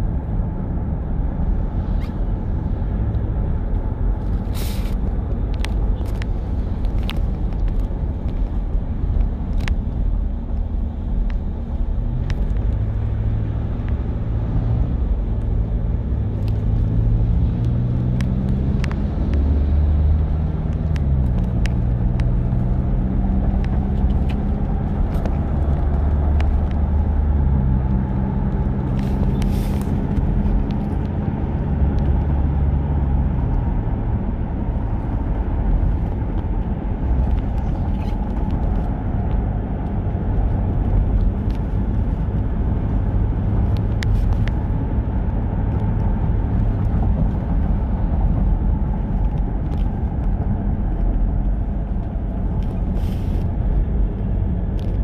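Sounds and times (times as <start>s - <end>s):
road rumble: 0.0s - 55.0s
vehicle engine hum: 0.0s - 55.0s.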